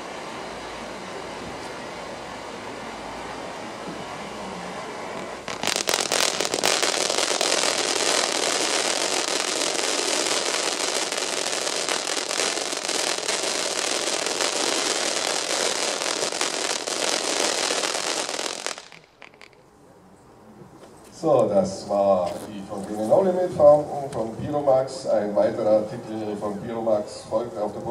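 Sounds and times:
firework fountain hissing and crackling: 0.0s - 19.7s.

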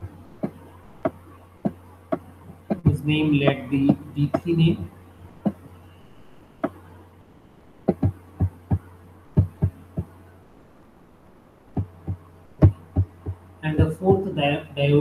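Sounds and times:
low steady hum: 0.0s - 15.0s
soft knocks and clicks: 0.4s - 2.9s.

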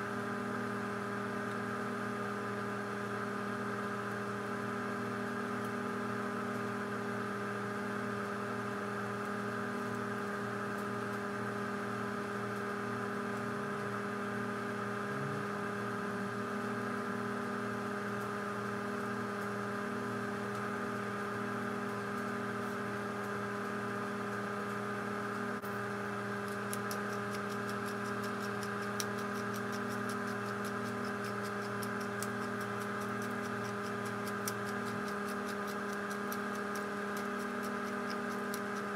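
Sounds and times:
steady hum with fixed tones: 0.0s - 38.9s
pepper mill grinding: 26.4s - 38.9s.

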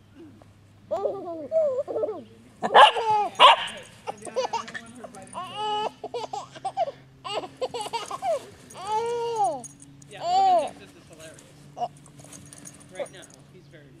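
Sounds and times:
baby babbling and giggling: 0.2s - 3.4s, 4.0s - 9.6s, 10.2s - 10.7s
puppy yapping: 0.9s - 4.2s.

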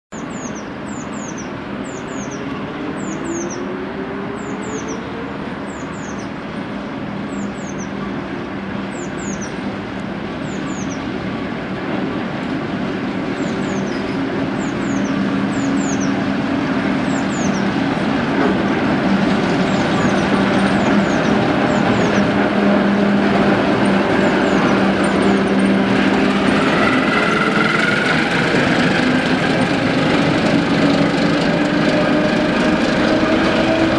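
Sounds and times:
diesel locomotive engine drone: 0.2s - 33.9s
rising whine: 19.3s - 33.9s.

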